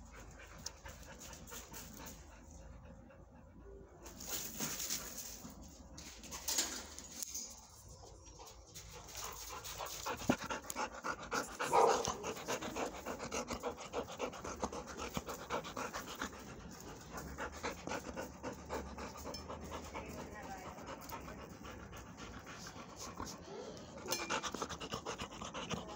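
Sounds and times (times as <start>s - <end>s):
dog panting: 8.3s - 25.9s.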